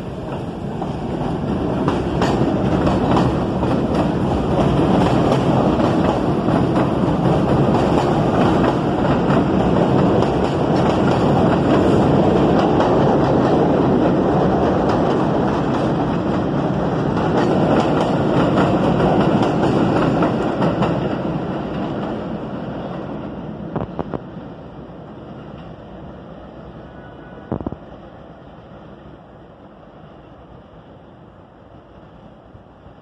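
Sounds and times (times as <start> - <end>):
subway train rumbling on steel track: 0.0 - 33.0
wheels clacking over rail joints: 0.3 - 23.1.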